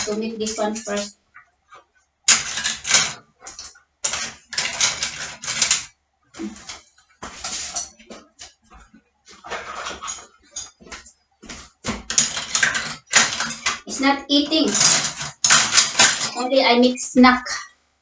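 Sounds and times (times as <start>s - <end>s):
metal cutlery clattering: 0.0s - 1.1s, 2.3s - 8.1s, 9.4s - 16.4s.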